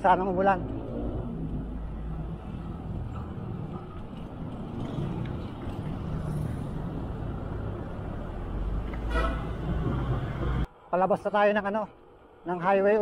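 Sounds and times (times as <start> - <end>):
bicycle tyre noise on road: 0.3 - 10.7.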